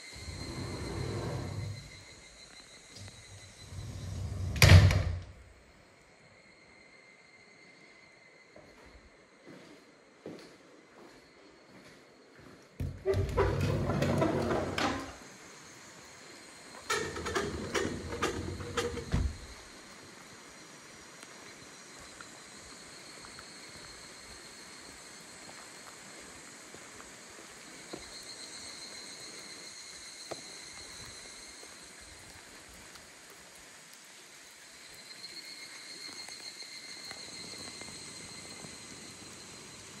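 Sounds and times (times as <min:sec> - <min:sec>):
high insect drone: 0:00.0 - 0:40.0
soft steady hiss: 0:14.0 - 0:40.0.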